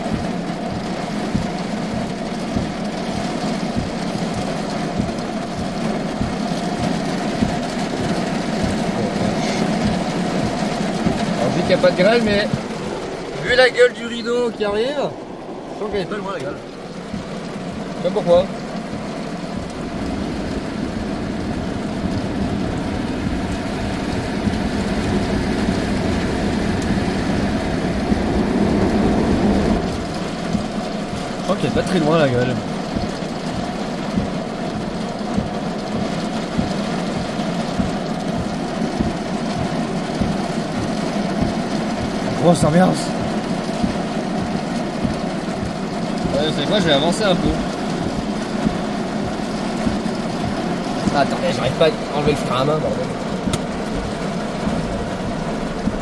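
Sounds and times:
low thuds: 0:00.0 - 0:56.0
rain on a car roof: 0:00.0 - 0:56.0
wind: 0:00.0 - 0:56.0
low hum: 0:14.4 - 0:31.5.

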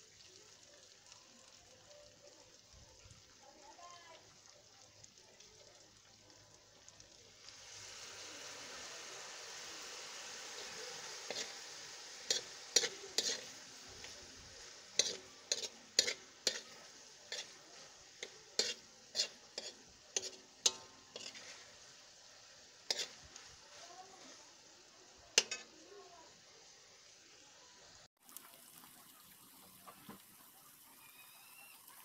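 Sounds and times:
rice frying in wok: 0:00.0 - 0:32.0
spatula clacking against wok: 0:12.3 - 0:13.5, 0:15.0 - 0:17.5, 0:18.2 - 0:21.4.

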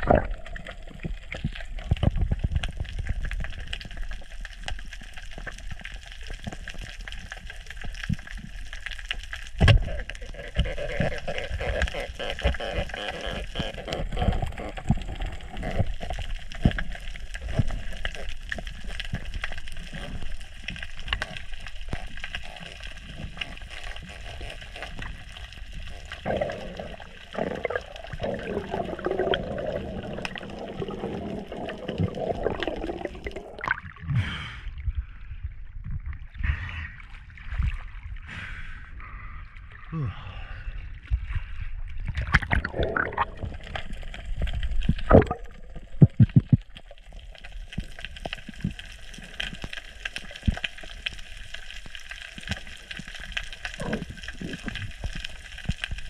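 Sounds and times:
underwater gurgling: 0:00.0 - 0:38.3, 0:39.2 - 0:56.0
water splashing: 0:09.5 - 0:34.2, 0:42.0 - 0:56.0
low underwater thumps: 0:44.9 - 0:46.8.

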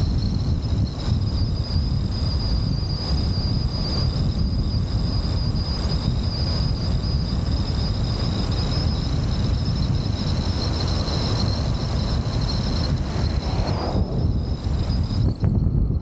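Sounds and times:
high-pitched whine: 0:00.0 - 0:16.0
wind and road noise: 0:00.0 - 0:16.0.

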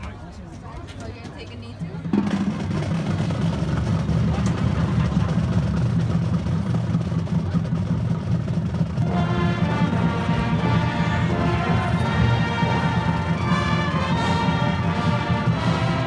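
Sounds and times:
drum rumble: 0:02.0 - 0:16.0
brass and woodwind chords: 0:09.0 - 0:16.0.

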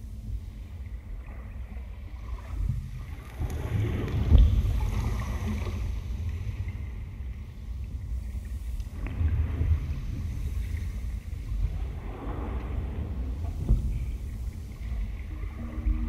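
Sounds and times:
ambient electronic music: 0:15.2 - 0:16.0.

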